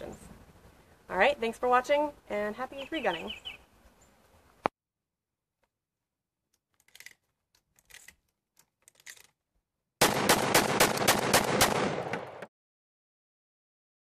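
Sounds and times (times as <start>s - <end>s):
shells clicking into shotgun magazine: 6.5s - 9.4s
rapid shotgun shots: 10.0s - 12.5s.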